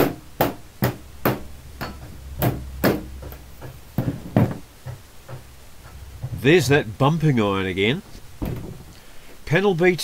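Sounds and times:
hand tool tapping metal: 0:00.0 - 0:06.5.

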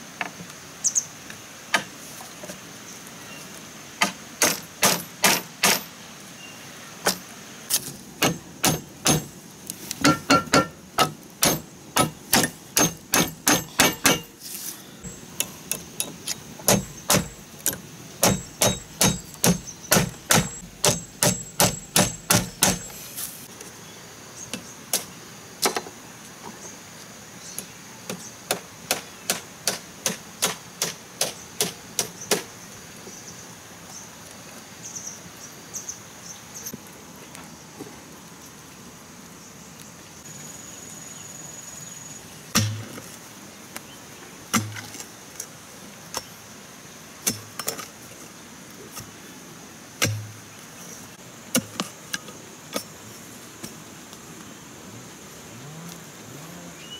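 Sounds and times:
insects droning: 0:00.0 - 0:56.9
hammer striking nails into bamboo: 0:04.0 - 0:05.9, 0:07.1 - 0:09.3, 0:10.0 - 0:14.3, 0:15.4 - 0:22.9, 0:42.6 - 0:42.9, 0:50.0 - 0:50.3.

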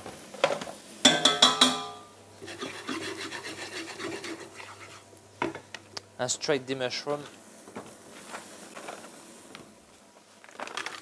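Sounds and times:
clattering metallic knocks: 0:01.1 - 0:02.0
wooden spoon scraping frying pan: 0:02.4 - 0:05.1.

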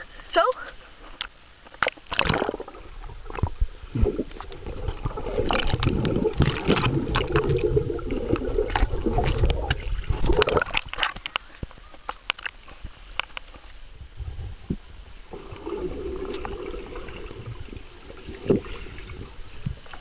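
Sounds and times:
water splashing: 0:01.8 - 0:11.6, 0:15.3 - 0:20.0
underwater gurgling and bubbling: 0:02.1 - 0:11.0, 0:14.0 - 0:20.0.

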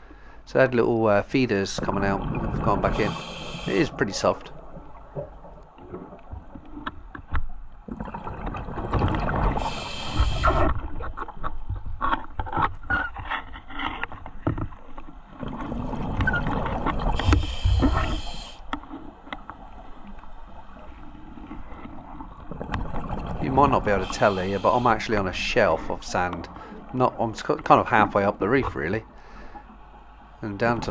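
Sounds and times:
bubbles rushing and gurgling: 0:01.4 - 0:06.8, 0:07.8 - 0:11.4, 0:15.3 - 0:18.5, 0:20.0 - 0:28.2
diver breathing through regulator: 0:02.8 - 0:04.0, 0:09.5 - 0:10.8, 0:17.0 - 0:18.7, 0:23.8 - 0:25.1, 0:29.1 - 0:29.7.

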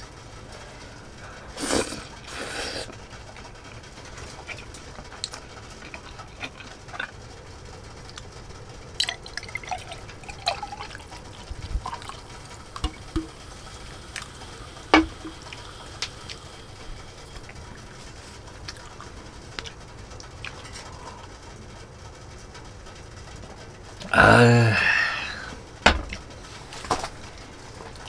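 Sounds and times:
beer pouring into glass: 0:09.0 - 0:13.4.

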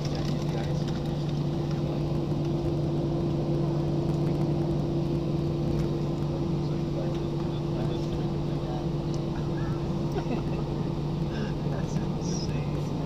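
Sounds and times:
jet cabin hum: 0:00.0 - 0:13.0.

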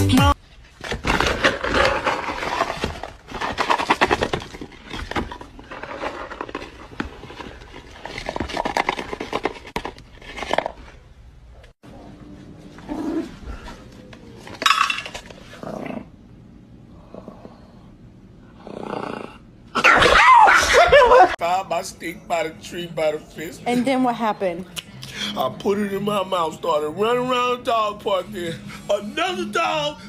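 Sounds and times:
dry kibble rustling and rattling: 0:00.6 - 0:11.0.

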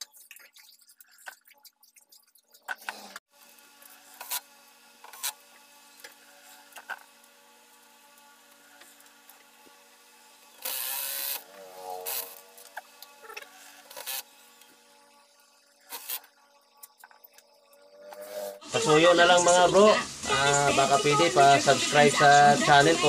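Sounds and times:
electrical hum: 0:03.6 - 0:23.0
wavering tone: 0:10.8 - 0:13.4, 0:16.3 - 0:18.8.

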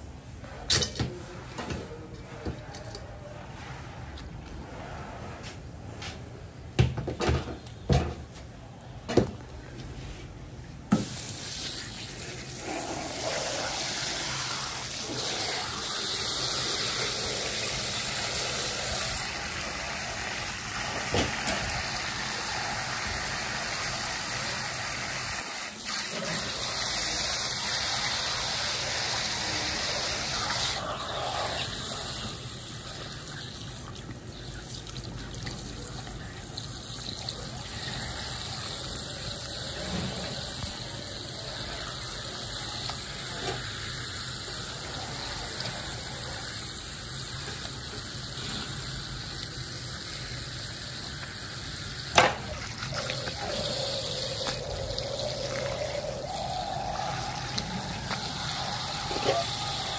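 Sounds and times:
faucet water running and splashing: 0:11.0 - 0:59.9.

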